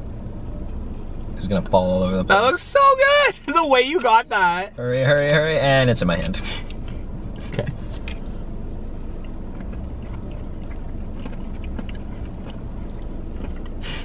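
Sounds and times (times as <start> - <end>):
car cabin rumble: 0.0 - 14.0
people chewing: 9.0 - 14.0.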